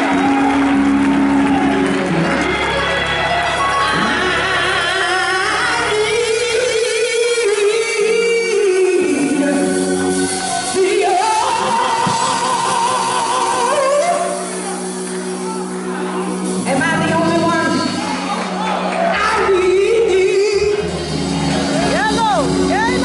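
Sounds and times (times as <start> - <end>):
keyboard chords: 0.0 - 23.0
woman singing gospel: 2.7 - 14.9, 19.0 - 21.0.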